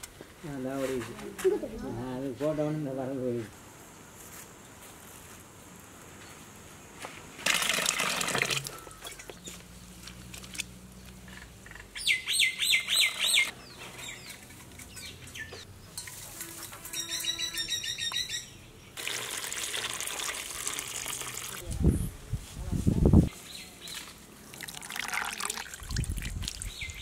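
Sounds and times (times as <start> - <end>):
bird chirping: 11.0 - 16.0, 16.9 - 19.0, 26.6 - 27.0.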